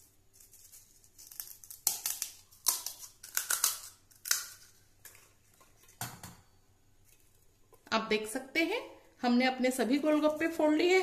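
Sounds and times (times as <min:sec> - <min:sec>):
fried shells cracking: 0:00.4 - 0:05.2.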